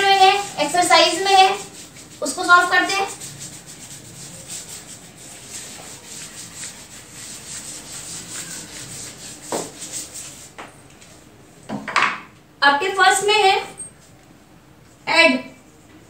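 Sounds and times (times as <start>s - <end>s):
eraser rubbing on whiteboard: 0.0s - 10.6s.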